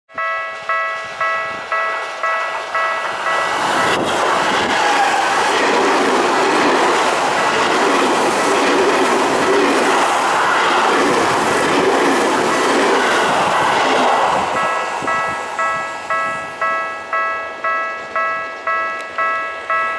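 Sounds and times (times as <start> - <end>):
faint level-crossing bell: 0.1 - 4.0, 14.6 - 19.9
electric train passing at speed: 0.2 - 19.9.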